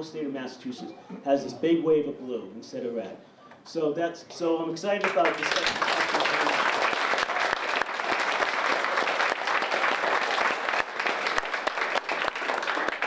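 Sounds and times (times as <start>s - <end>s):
crowd applauding: 5.0s - 13.0s.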